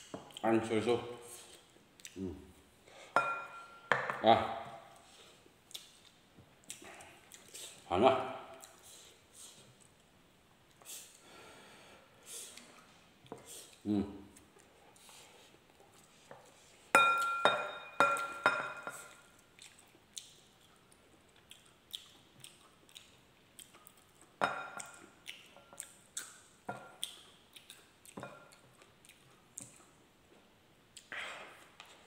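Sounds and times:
ceramic bowls clinking: 3.2s - 4.3s, 17.0s - 19.1s, 24.4s - 24.8s
eating clicks and smacks: 5.6s - 7.7s, 19.1s - 30.0s.

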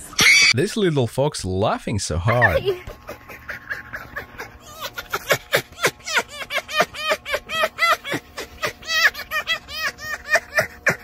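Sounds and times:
fox cackling: 2.4s - 11.0s.

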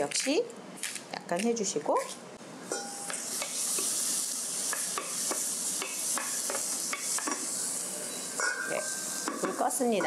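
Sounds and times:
vegetables sizzling in a pan: 2.6s - 10.0s.

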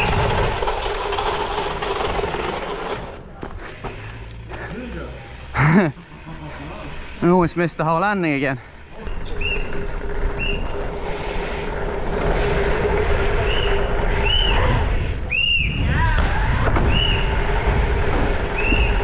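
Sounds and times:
mountain bike tyres rolling: 0.0s - 19.0s
falling squeal: 8.9s - 11.4s, 13.3s - 17.5s.

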